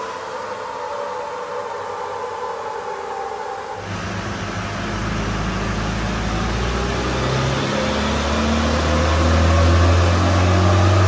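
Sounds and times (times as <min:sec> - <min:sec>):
diesel engine revving under load: 0:03.8 - 0:11.0.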